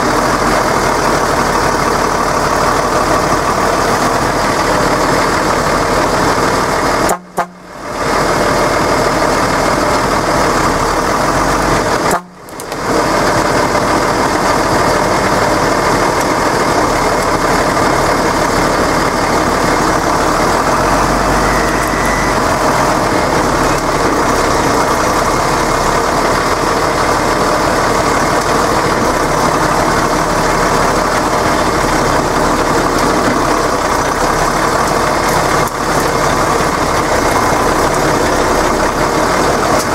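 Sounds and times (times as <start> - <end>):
tractor diesel engine under load: 0.0 - 39.9.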